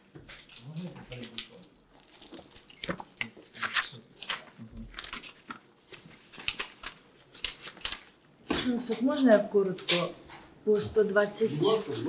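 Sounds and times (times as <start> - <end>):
paper pages rustling: 0.2 - 9.1.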